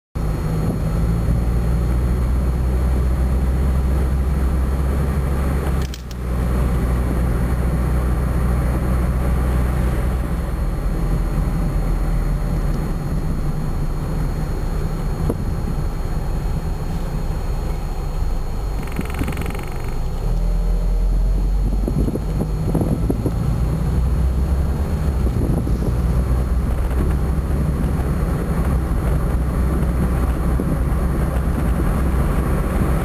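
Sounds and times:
car engine and tyre rumble: 0:00.2 - 0:33.0.

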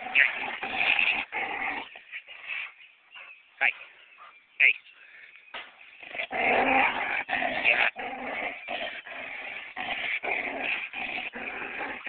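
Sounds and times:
dog growling: 0:00.0 - 0:02.7, 0:06.0 - 0:12.0.

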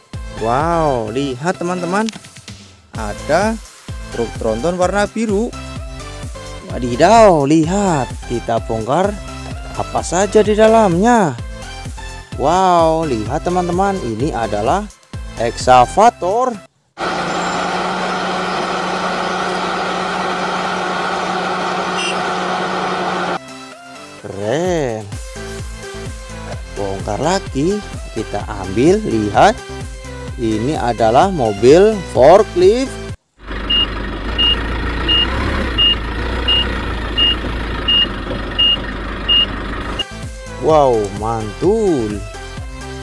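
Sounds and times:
heavy vehicle engine idling: 0:17.0 - 0:23.4, 0:33.4 - 0:40.1.

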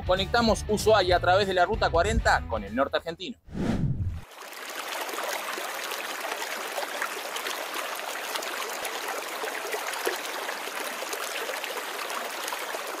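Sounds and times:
small splashes and drips: 0:04.2 - 0:13.0
river babbling over stones: 0:04.3 - 0:13.0.

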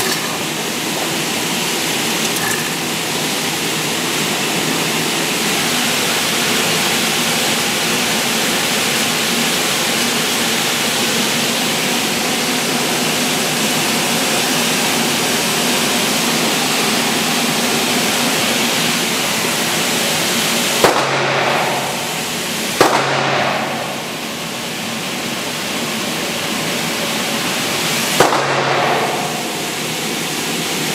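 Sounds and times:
ventilation hiss: 0:00.0 - 0:30.9
gunshots: 0:20.8 - 0:22.2, 0:22.8 - 0:24.1, 0:28.2 - 0:29.6.

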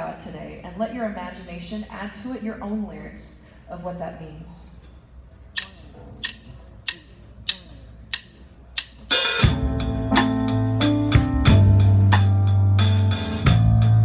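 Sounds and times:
drumstick count-in clicks: 0:05.5 - 0:09.5
live band playing: 0:08.9 - 0:14.0.

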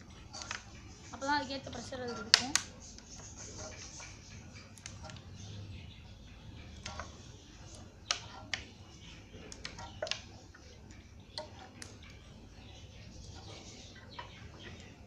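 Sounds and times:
sharp clicks and light taps: 0:06.7 - 0:12.2.

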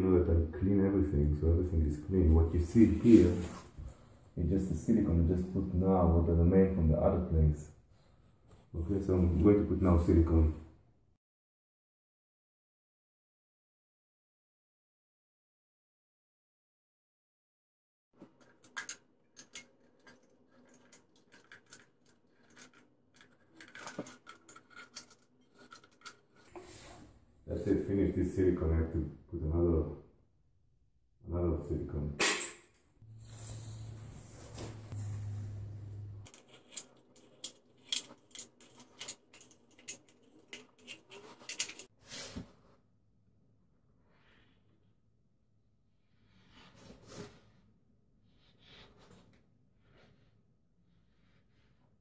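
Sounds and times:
low steady hum: 0:33.0 - 0:40.6.

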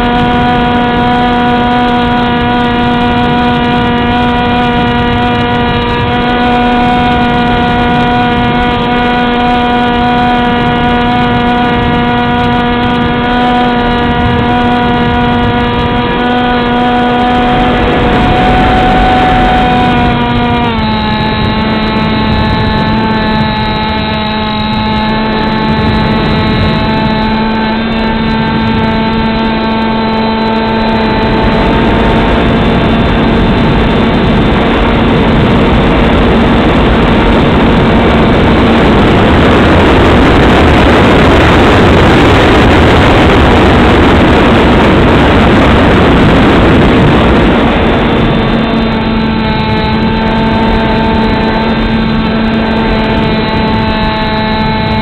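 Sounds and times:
model plane motor and propeller: 0:00.0 - 0:55.0
wind rush: 0:00.0 - 0:55.0.

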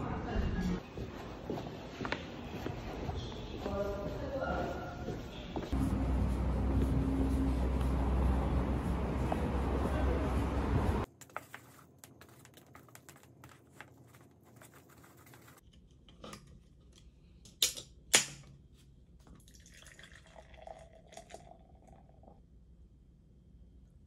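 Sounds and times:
beer pouring and fizzing: 0:19.3 - 0:22.4.

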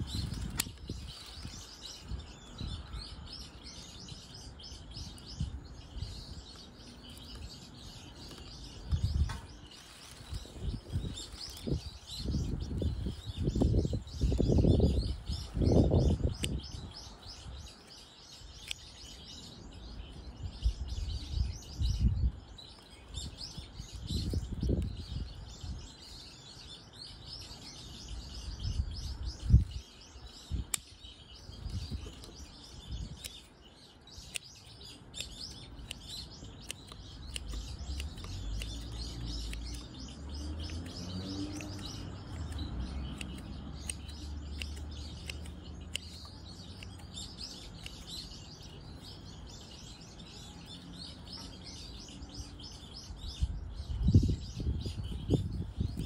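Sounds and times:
birds chirping: 0:00.0 - 0:56.0
scissors trimming roots: 0:00.1 - 0:01.7, 0:13.3 - 0:19.2, 0:30.7 - 0:31.0, 0:31.6 - 0:49.2
hands rustling roots: 0:08.2 - 0:12.2.

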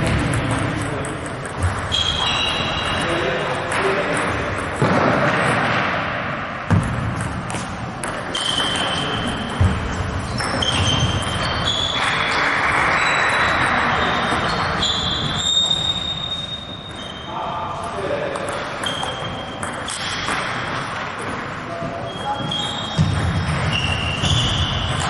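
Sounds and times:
echoing noise of play: 0:00.0 - 0:25.0
shoe squeaks: 0:01.6 - 0:03.5, 0:08.2 - 0:20.3, 0:21.7 - 0:25.0.

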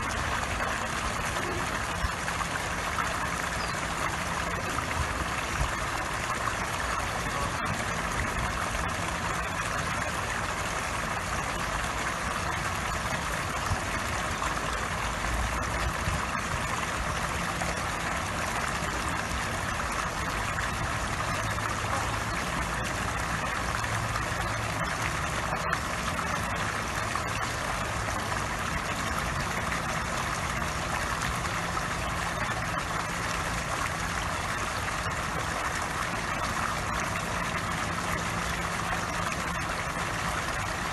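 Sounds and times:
fountain water splashing on pond: 0:00.0 - 0:40.9
low steady hum: 0:00.0 - 0:40.9.

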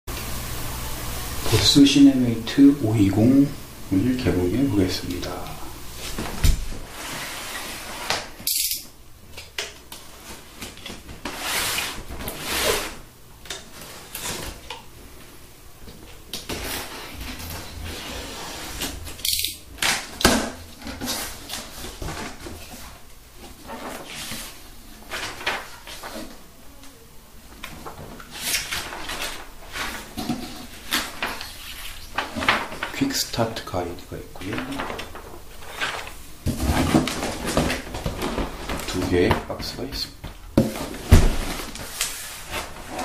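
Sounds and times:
paper rustling: 0:19.8 - 0:26.5, 0:27.6 - 0:33.5, 0:34.4 - 0:39.6, 0:40.6 - 0:43.0.

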